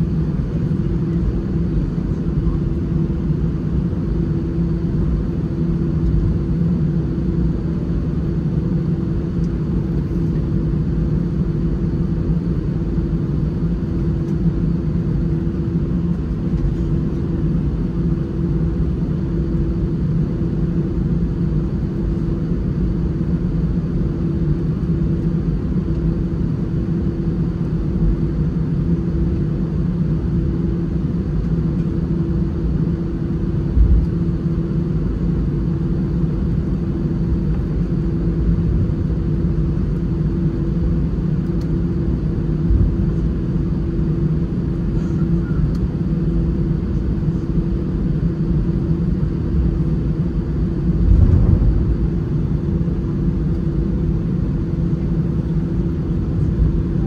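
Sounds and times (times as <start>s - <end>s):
airliner cabin rumble: 0.0s - 57.0s
short low bump: 51.0s - 52.5s.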